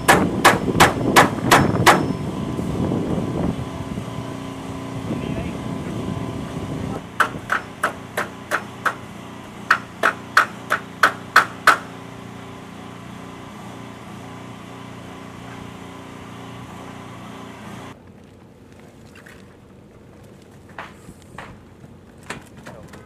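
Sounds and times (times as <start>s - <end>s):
hammer striking nails into wood: 0.0s - 2.1s, 7.2s - 9.0s, 9.7s - 12.0s
steady low hum: 0.0s - 23.0s.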